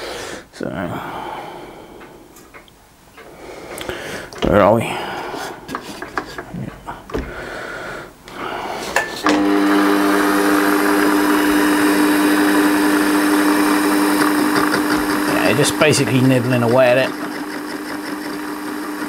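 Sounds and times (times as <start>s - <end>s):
lathe motor humming: 9.0s - 19.0s.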